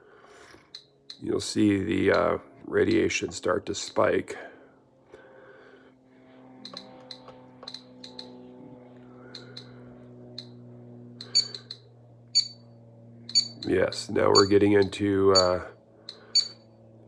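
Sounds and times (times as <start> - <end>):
low hum: 0.0 - 17.0
geiger counter clicking: 0.7 - 1.3, 6.6 - 8.4, 9.3 - 10.6, 11.2 - 11.8, 12.4 - 12.6, 13.3 - 13.7, 14.4 - 16.6.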